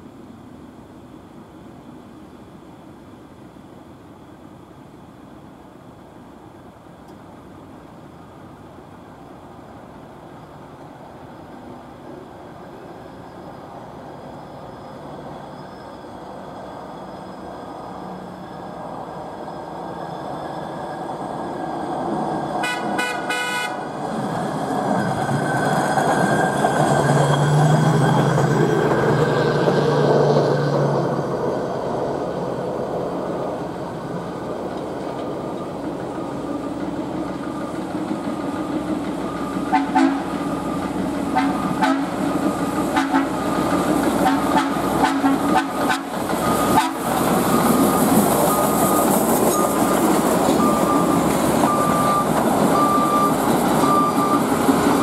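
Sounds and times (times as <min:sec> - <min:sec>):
truck running on rails: 0:07.2 - 0:55.0
short horn toots: 0:22.6 - 0:23.8.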